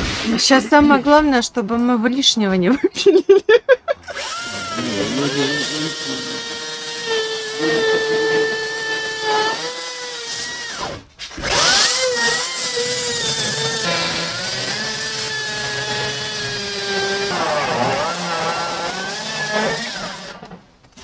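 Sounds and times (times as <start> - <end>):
power tool motor running: 4.1 - 20.6.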